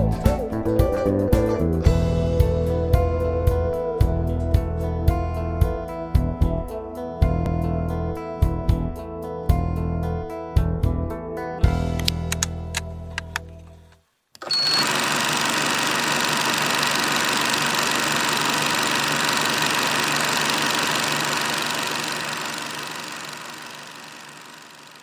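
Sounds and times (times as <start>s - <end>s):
brief high beep: 14.4s - 14.9s
film projector whirring and clatter: 14.4s - 25.0s.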